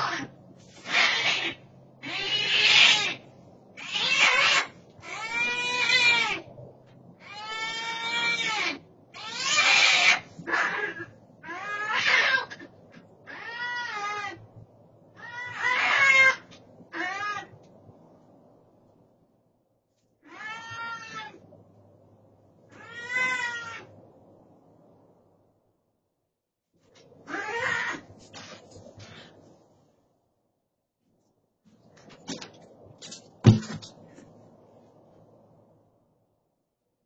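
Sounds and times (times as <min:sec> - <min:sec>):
cats yowling: 0:00.0 - 0:06.5, 0:07.2 - 0:14.5, 0:15.2 - 0:17.6, 0:20.2 - 0:21.4, 0:22.7 - 0:23.9, 0:27.2 - 0:28.4.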